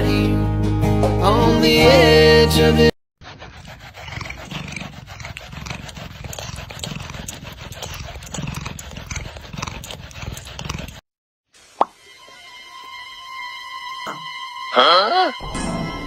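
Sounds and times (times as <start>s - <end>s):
brush scratching through fur: 3.2s - 11.0s
cat purring: 3.4s - 11.0s.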